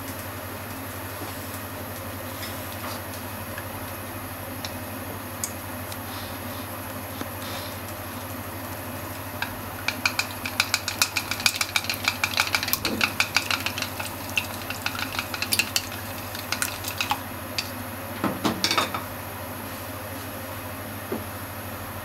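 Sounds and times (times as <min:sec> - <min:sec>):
chopsticks beating egg in bowl: 0:07.2 - 0:17.8
chopsticks knocking bowl: 0:09.4 - 0:17.7.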